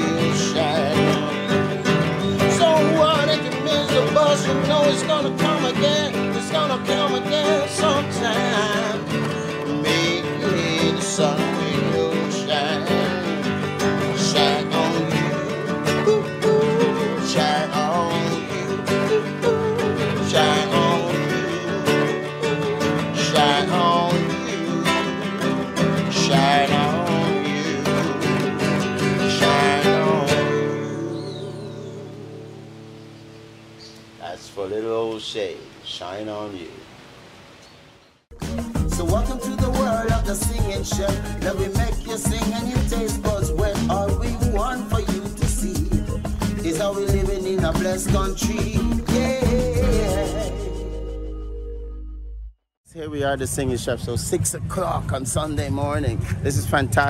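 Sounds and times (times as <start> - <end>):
man singing: 0.0 - 32.3, 38.4 - 51.3
strummed nylon-string guitar: 0.0 - 33.2, 38.3 - 51.7.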